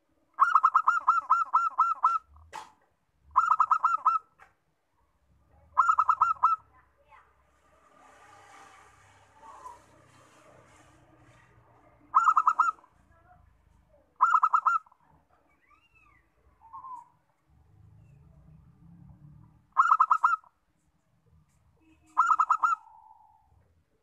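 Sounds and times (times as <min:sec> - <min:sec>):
dove cooing: 0:00.4 - 0:02.3, 0:03.4 - 0:04.3, 0:05.7 - 0:06.7, 0:12.0 - 0:12.9, 0:14.2 - 0:15.0, 0:16.6 - 0:17.2, 0:19.7 - 0:20.5, 0:22.0 - 0:23.6.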